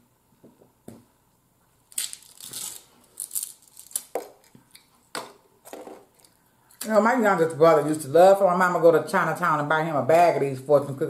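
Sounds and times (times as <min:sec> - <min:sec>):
wrapper crinkling and tearing: 0:01.9 - 0:04.5.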